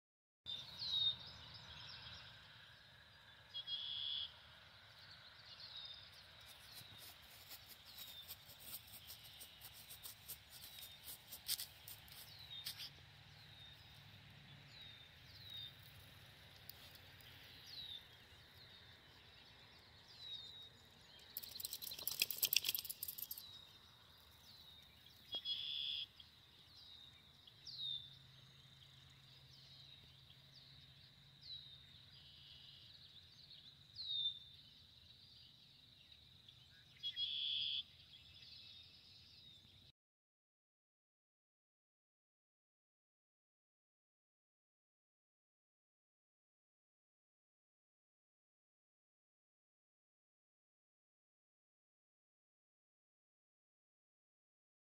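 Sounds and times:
birds chirping: 0.5s - 39.8s
rustling noise: 6.5s - 13.0s
quick clicks: 21.3s - 23.4s.

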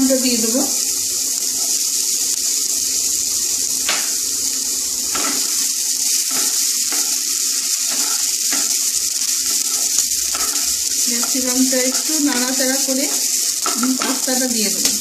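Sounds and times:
vegetables sizzling in oil: 0.0s - 15.0s
spatula scraping and knocking pan: 5.1s - 15.0s.

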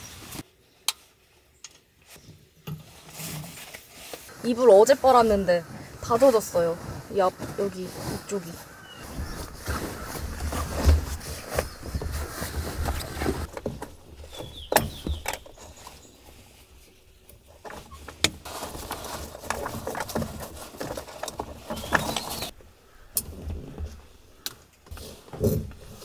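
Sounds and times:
bedding rustling: 2.2s - 22.6s.

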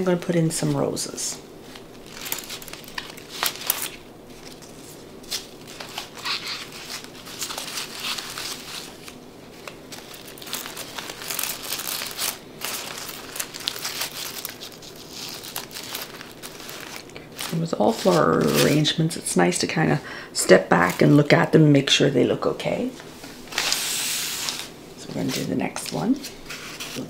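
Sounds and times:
plastic leaves rustling and crinkling: 0.1s - 19.7s, 20.5s - 22.0s, 22.8s - 27.0s.

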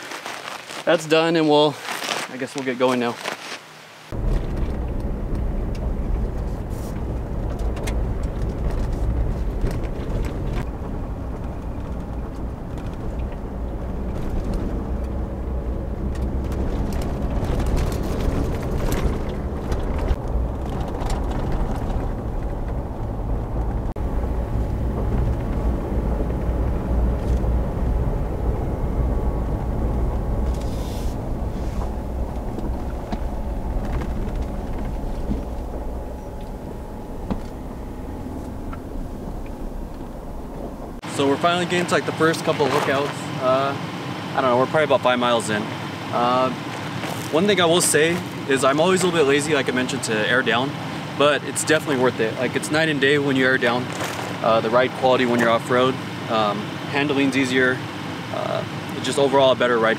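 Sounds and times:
tyres rumbling on gravel: 0.0s - 59.9s
knocks and clicks: 31.3s - 41.0s.

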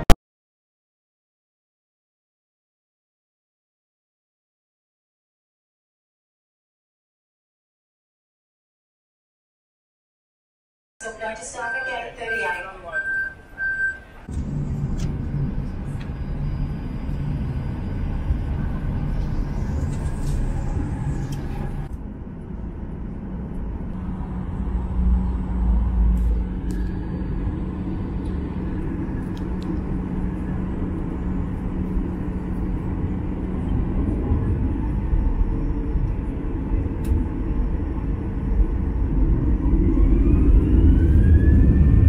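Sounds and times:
wheels rumbling on runway: 13.7s - 42.0s
jet engine drone: 14.1s - 42.0s.

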